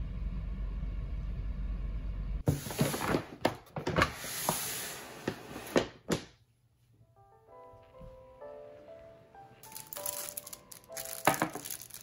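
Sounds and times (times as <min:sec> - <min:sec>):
paper bag rustling: 0:09.6 - 0:12.0.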